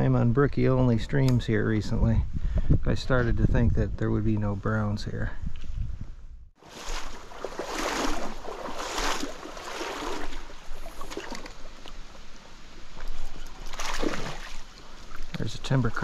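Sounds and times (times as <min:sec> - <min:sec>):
water sloshing splashes: 0:06.6 - 0:11.9, 0:13.0 - 0:15.4
stream water flowing: 0:06.6 - 0:15.4.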